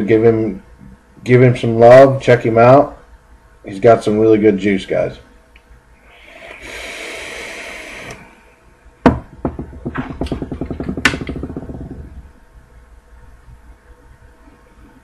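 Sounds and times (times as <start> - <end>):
airflow hiss through atomizer: 6.0 - 8.4.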